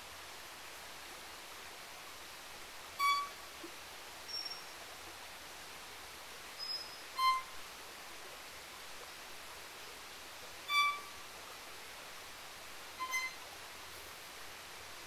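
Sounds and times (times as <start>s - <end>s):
steady hiss: 0.0s - 15.0s
high thin whistles: 3.0s - 3.4s, 6.6s - 7.5s, 13.0s - 13.4s
violin high bowed notes: 13.0s - 13.4s.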